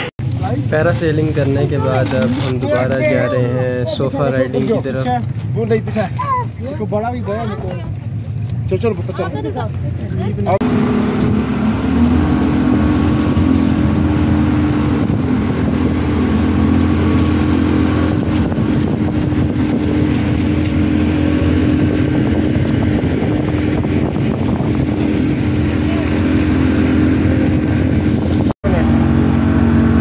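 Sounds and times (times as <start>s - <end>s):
churning wake rushing: 0.0s - 30.0s
outboard motor running: 0.0s - 30.0s.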